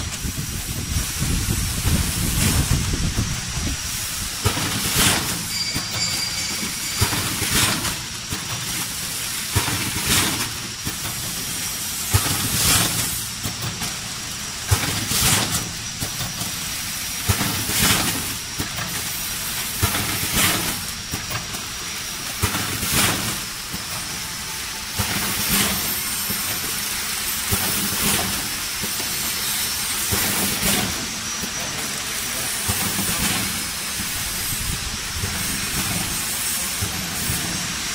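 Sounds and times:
compressed air hiss: 0:00.0 - 0:05.6, 0:06.7 - 0:37.9
machine clack: 0:04.4 - 0:14.0, 0:14.6 - 0:24.2, 0:32.6 - 0:33.6.

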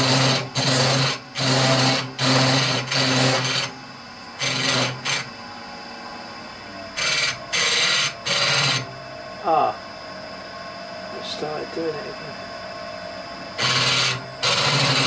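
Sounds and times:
cutter scraping wood on lathe: 0:00.0 - 0:03.7, 0:04.4 - 0:05.3, 0:07.0 - 0:08.9, 0:13.6 - 0:15.0
lathe low hum: 0:00.0 - 0:15.0.

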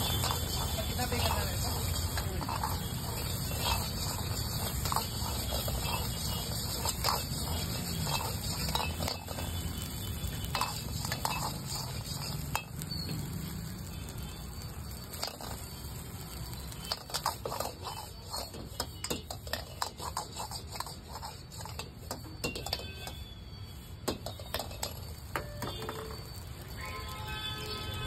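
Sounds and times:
ladle clanking against wok: 0:00.0 - 0:09.6, 0:10.4 - 0:12.8.

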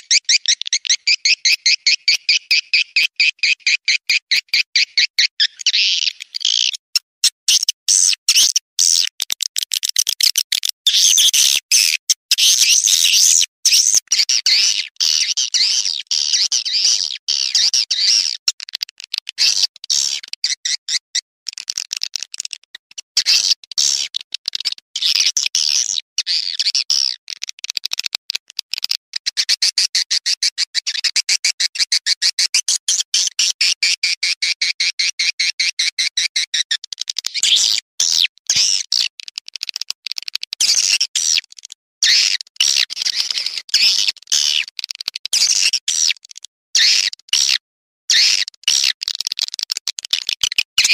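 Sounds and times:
swiftlet chittering calls: 0:00.0 - 0:09.1.

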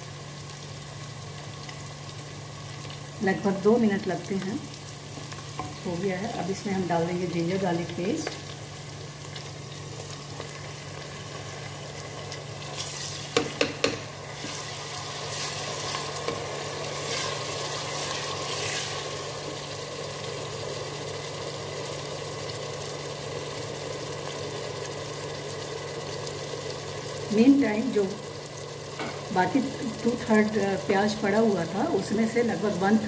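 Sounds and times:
onions sizzling in hot oil: 0:00.0 - 0:33.0
wooden spoon stirring and scraping: 0:12.6 - 0:19.2.

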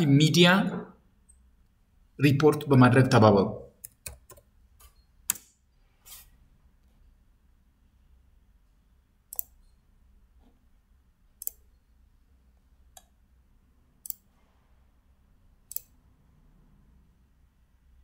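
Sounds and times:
faint low room hum: 0:00.0 - 0:18.0
mouse clicks: 0:09.3 - 0:09.7, 0:11.4 - 0:11.7, 0:14.0 - 0:14.3, 0:15.7 - 0:16.0.

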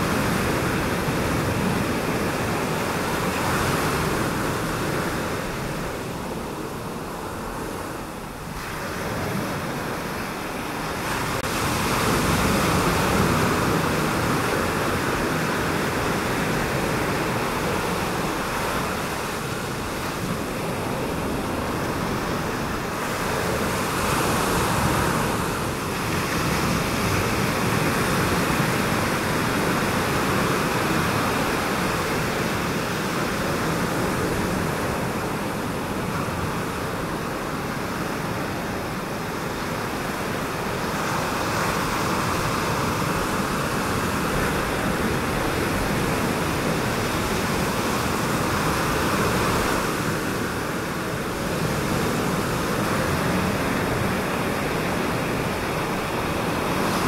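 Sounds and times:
waves breaking: 0:00.0 - 0:57.0.

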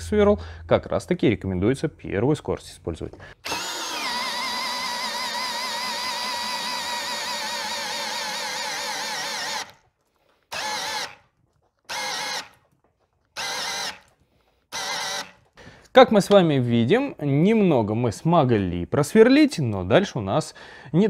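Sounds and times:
auger bit drilling into wood: 0:03.4 - 0:09.8, 0:10.5 - 0:11.3, 0:11.9 - 0:12.6, 0:13.4 - 0:15.6
cordless drill motor whining: 0:03.4 - 0:09.8, 0:10.5 - 0:11.2, 0:11.9 - 0:12.6, 0:13.4 - 0:15.4.

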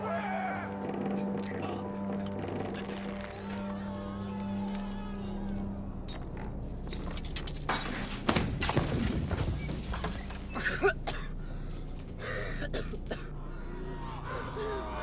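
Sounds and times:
low steady drone: 0:10.5 - 0:15.0.

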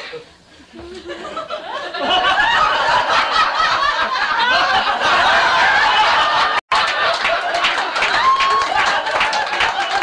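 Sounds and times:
audience laughing: 0:00.0 - 0:10.0.

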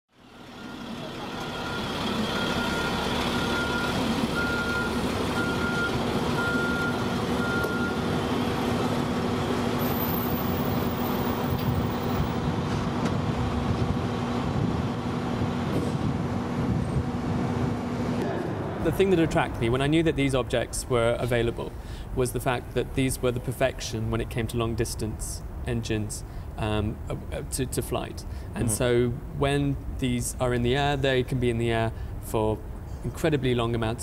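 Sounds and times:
truck engine running: 0:00.2 - 0:22.1
reversing alarm beeping: 0:00.3 - 0:08.1.

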